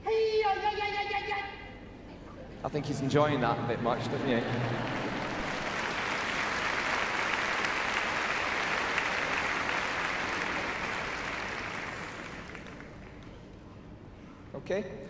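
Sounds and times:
crowd applauding: 0:03.3 - 0:13.7.

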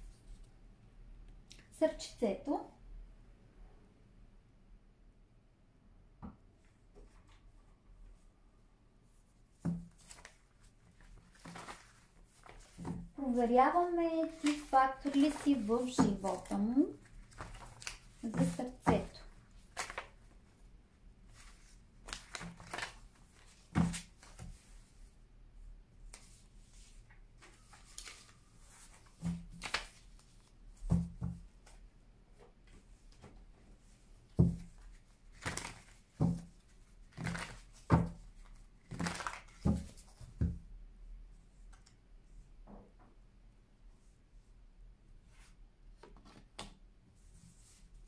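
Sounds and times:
cards being shuffled: 0:09.9 - 0:10.4, 0:14.2 - 0:20.2, 0:21.4 - 0:24.6, 0:26.1 - 0:30.5, 0:34.5 - 0:36.4, 0:37.0 - 0:40.3.

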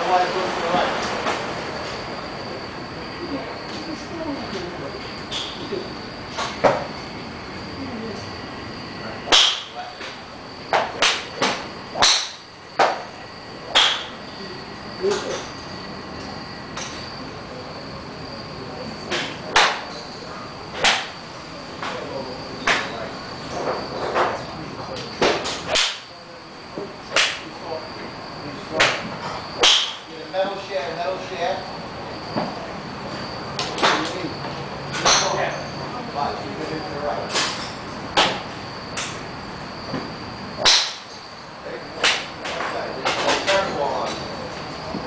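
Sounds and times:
steady background hiss: 0:00.0 - 0:45.0
golf clubs striking balls: 0:09.3 - 0:14.2, 0:19.1 - 0:20.1, 0:20.8 - 0:21.2, 0:25.2 - 0:26.1, 0:28.8 - 0:30.6, 0:34.9 - 0:35.6, 0:39.9 - 0:41.2.

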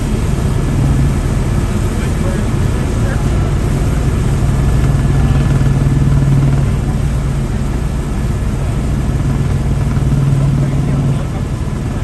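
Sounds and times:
helicopter engine and rotor drone: 0:00.0 - 0:12.0.

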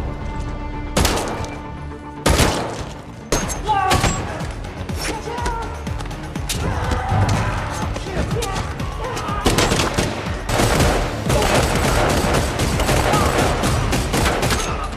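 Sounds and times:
movie music score: 0:00.0 - 0:14.9
rapid gunfire: 0:09.4 - 0:14.9.

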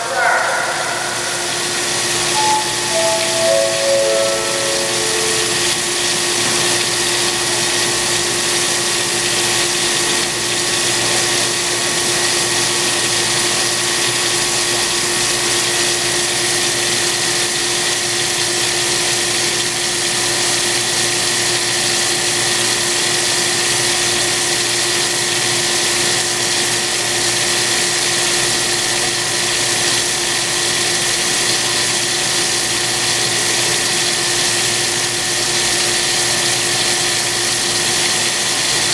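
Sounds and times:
high machine whine: 0:00.0 - 0:06.9.

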